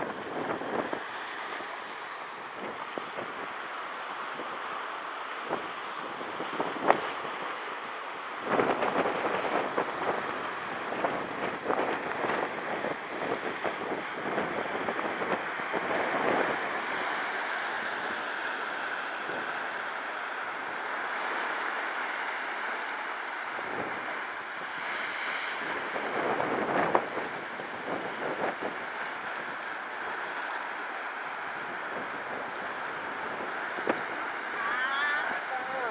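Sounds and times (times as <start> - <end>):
wind buffeting microphone: 0.0 - 1.8, 5.4 - 7.4, 8.4 - 19.6, 25.5 - 28.9, 31.6 - 35.9
surf breaking over rocks: 0.0 - 30.6, 31.2 - 35.9.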